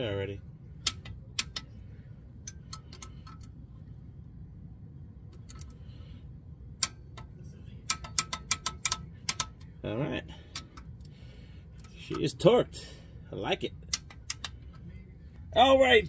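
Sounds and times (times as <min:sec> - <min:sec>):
torque wrench ratchet clicking: 0:07.9 - 0:09.6.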